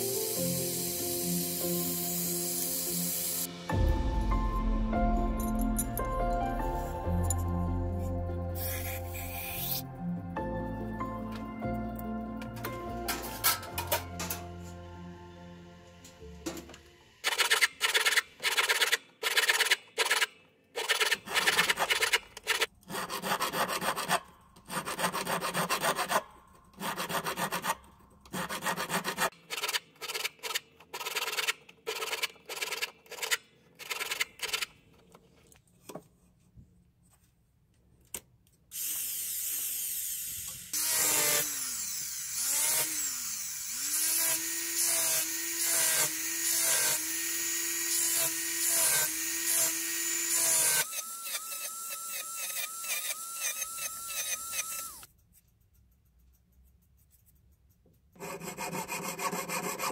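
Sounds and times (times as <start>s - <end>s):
hand file rasping on metal: 20.8s - 30.2s, 58.2s - 59.9s
rotary sanding tool whining: 38.8s - 55.1s.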